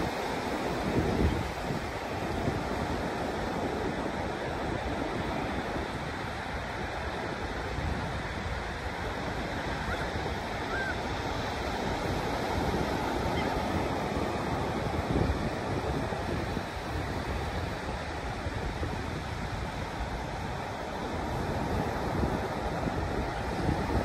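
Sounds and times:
ocean surf breaking: 0.0 - 24.0
wind rumbling on microphone: 0.0 - 24.0
gull call: 10.7 - 11.0.

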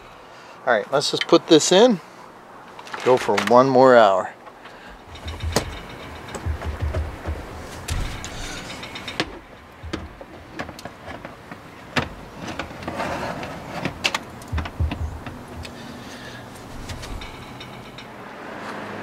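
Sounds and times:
wire rack clinking and scraping: 4.7 - 18.3.

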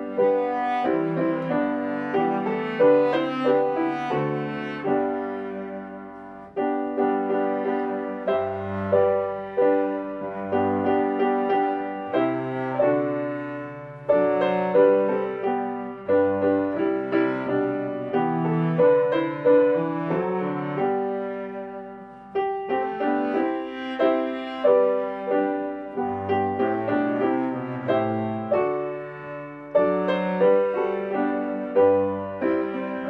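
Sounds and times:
slow piano music: 0.0 - 33.0.

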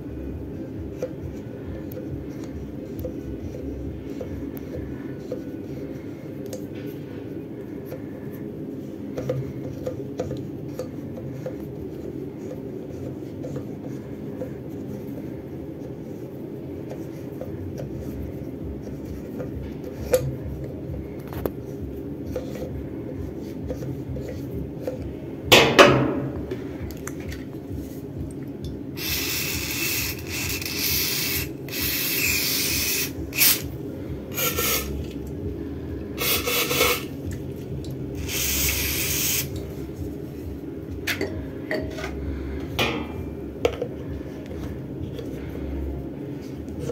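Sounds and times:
aerosol spray hissing: 29.0 - 33.6, 34.4 - 35.0, 36.2 - 37.1, 38.2 - 39.5.

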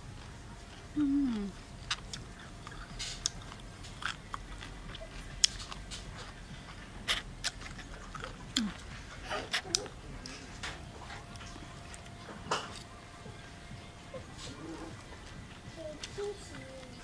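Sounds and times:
person chewing crunchy food: 0.1 - 13.0.

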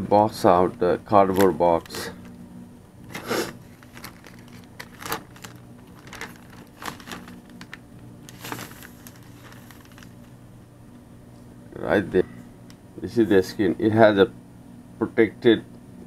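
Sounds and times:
packaging rustling and crinkling: 1.3 - 2.3, 3.1 - 10.4.

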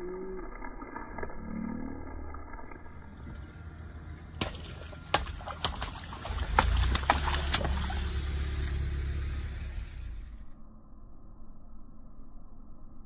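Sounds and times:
low rumble: 0.0 - 13.0
water splashing on pavement: 4.4 - 10.2
water balloons bursting: 4.4 - 10.4.

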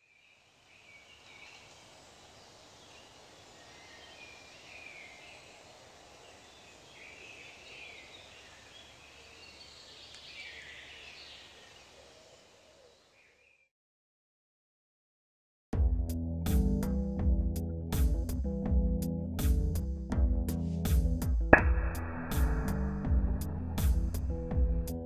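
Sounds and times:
distant birds calling: 21.6 - 25.0.

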